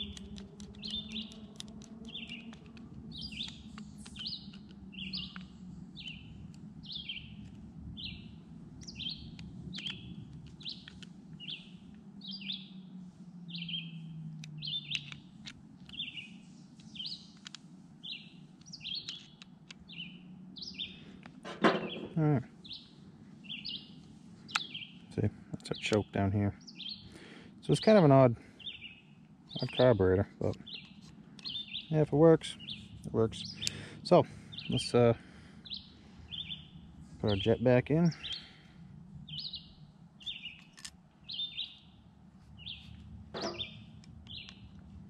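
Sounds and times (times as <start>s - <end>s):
small parts clicking: 0.0s - 5.6s, 14.4s - 16.1s, 16.7s - 17.6s, 18.6s - 19.9s, 40.5s - 41.0s
bird chirping: 0.0s - 45.0s
tool clattering on table: 21.5s - 22.1s, 43.4s - 43.7s.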